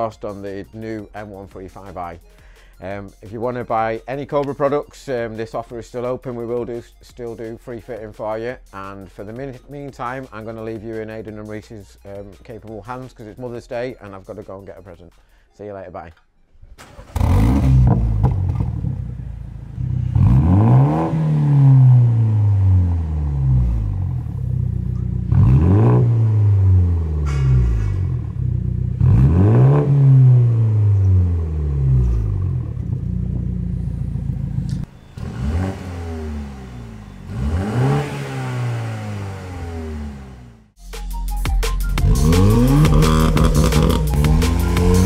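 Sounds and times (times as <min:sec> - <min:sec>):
car engine revving: 0:16.8 - 0:40.8, 0:42.0 - 0:45.0.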